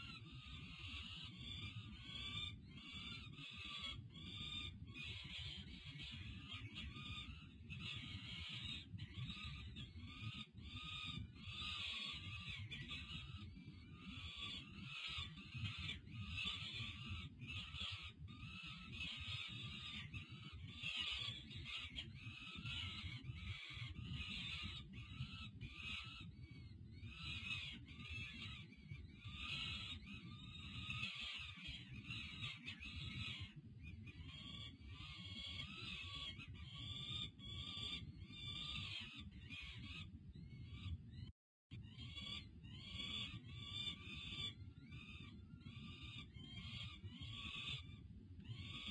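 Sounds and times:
falcon nestlings begging calls: 0.0s - 40.9s, 41.8s - 48.9s.

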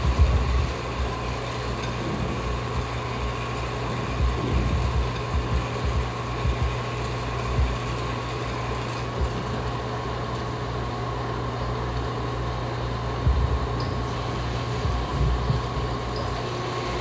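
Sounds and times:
low thumps: 0.0s - 1.2s, 4.1s - 6.8s, 13.2s - 14.1s, 14.8s - 16.0s
mechanical hum and whir: 0.0s - 17.0s.

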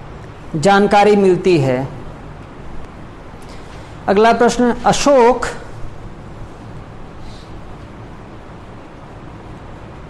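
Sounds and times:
hiss: 7.2s - 7.6s.

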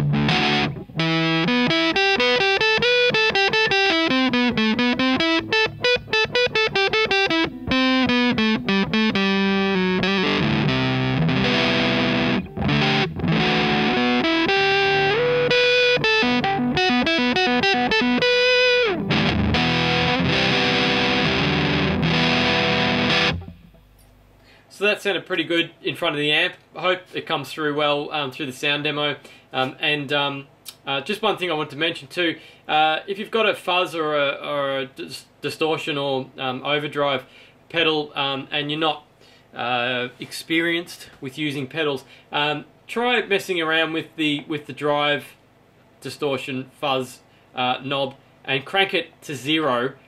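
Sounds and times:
fuzz electric guitar playing: 0.0s - 24.0s.

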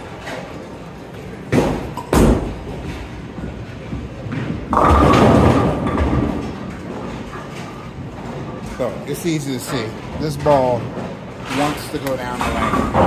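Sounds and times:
bowling ball rolling: 0.1s - 8.8s
ball crashing into pins: 1.5s - 3.0s, 4.3s - 6.7s
bowling ball thumping on lane: 4.3s - 6.6s.

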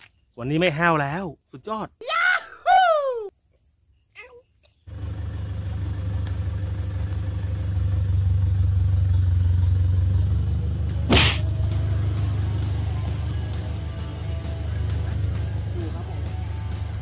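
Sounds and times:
fishing rod whoosh: 11.1s - 11.4s.

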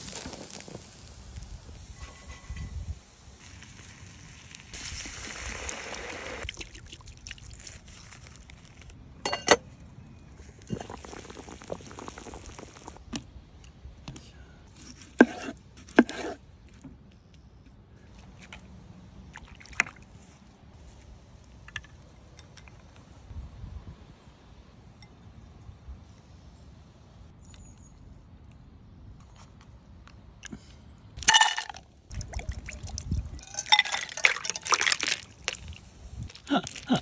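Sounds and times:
hiss: 0.0s - 6.4s
utensils clacking: 33.4s - 35.2s.

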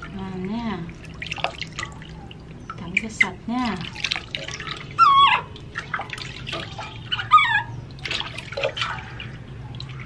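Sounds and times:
water splashing in a steel basin: 0.0s - 10.0s
baby monkey squealing: 4.9s - 5.5s, 6.9s - 7.8s.

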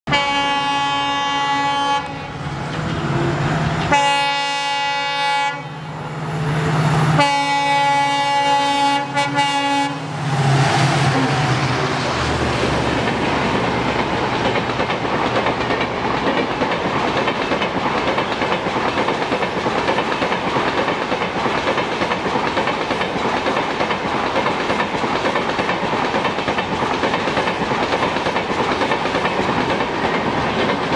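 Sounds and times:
locomotive horn blasts: 0.1s - 2.4s, 3.0s - 6.0s, 7.1s - 10.2s
train wheels clattering on rails: 2.5s - 4.2s, 10.2s - 30.9s.

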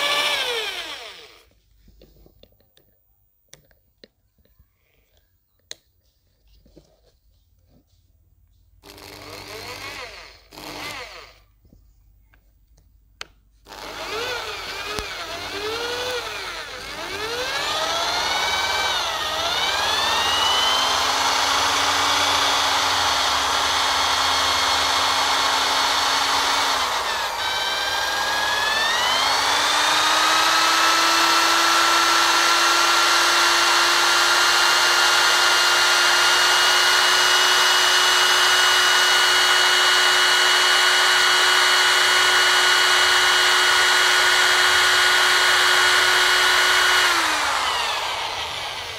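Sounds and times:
electric drill whining: 0.0s - 1.6s, 8.8s - 11.5s, 13.7s - 48.9s.

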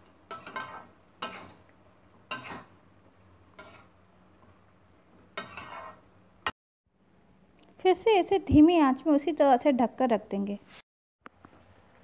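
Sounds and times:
spatula scraping metal pan: 0.3s - 1.6s, 2.3s - 2.7s, 3.6s - 3.9s, 5.4s - 6.1s.

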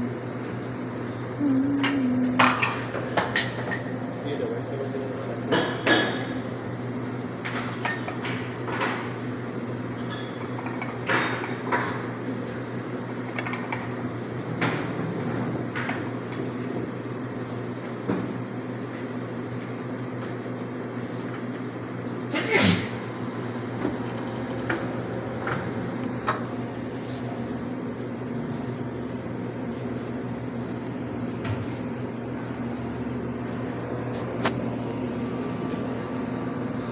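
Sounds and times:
steady low hum: 0.0s - 7.4s, 22.3s - 36.9s
cups and dishes clinking: 1.8s - 4.0s.

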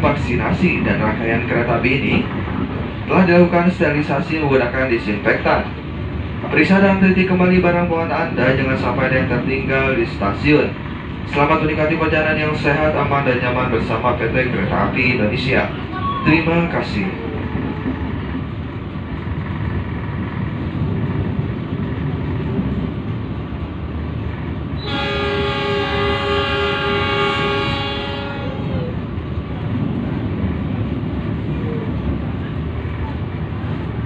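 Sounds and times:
train wheels rumbling on track: 0.0s - 34.0s
train horn blast: 24.8s - 29.0s.

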